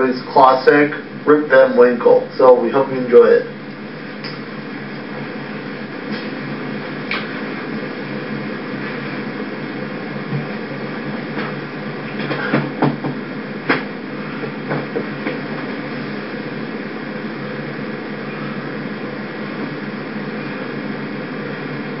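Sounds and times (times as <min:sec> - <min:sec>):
background hum and hiss: 0:00.0 - 0:22.0.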